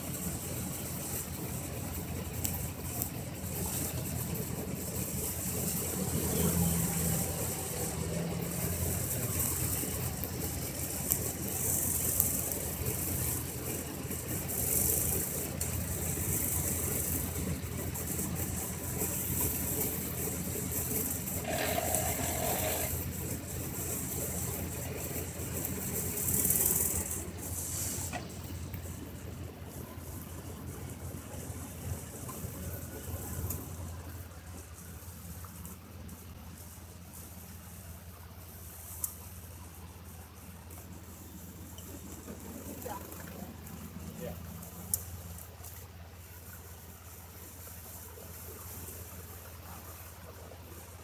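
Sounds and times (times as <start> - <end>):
off-road engine running: 0.0 - 51.0
hissing noise bursts: 24.0 - 29.3.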